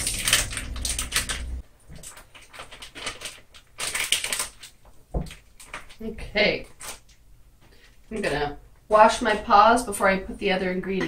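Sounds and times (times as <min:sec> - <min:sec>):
plastic wrap crinkling: 0:00.0 - 0:08.5
low background hum: 0:00.0 - 0:11.0.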